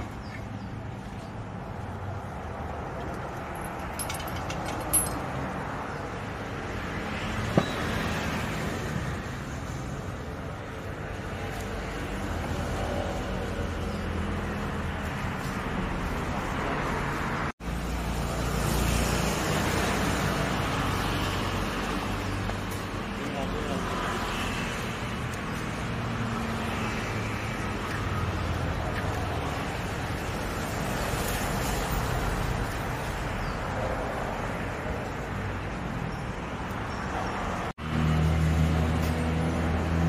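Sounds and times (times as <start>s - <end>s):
traffic rumble: 0.0s - 40.0s.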